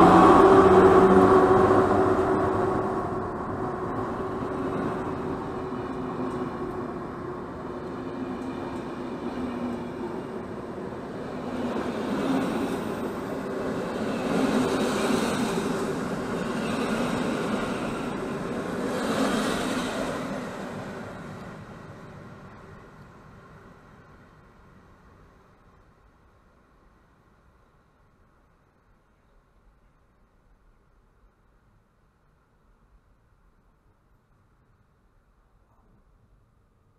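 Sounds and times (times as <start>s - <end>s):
train wheels rumbling on rails: 0.0s - 27.1s.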